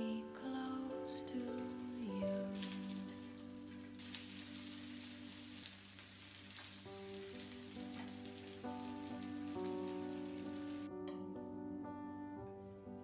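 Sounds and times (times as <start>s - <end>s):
soft background music: 0.0s - 13.0s
dumplings sizzling in oil: 1.6s - 10.9s.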